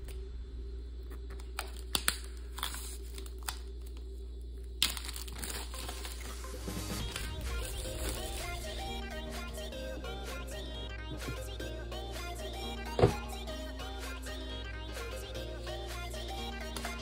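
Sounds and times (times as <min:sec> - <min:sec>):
plastic shrink-wrap crinkling: 0:01.6 - 0:04.0, 0:04.8 - 0:08.5.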